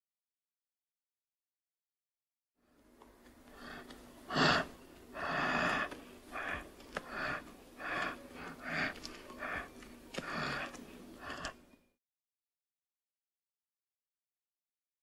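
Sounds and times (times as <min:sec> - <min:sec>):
cheetah making breathy sounds: 0:03.6 - 0:11.6.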